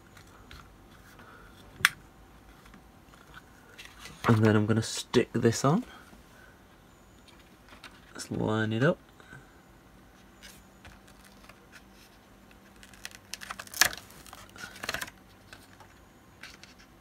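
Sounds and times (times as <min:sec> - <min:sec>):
label backing paper peeling: 0:11.0 - 0:15.2.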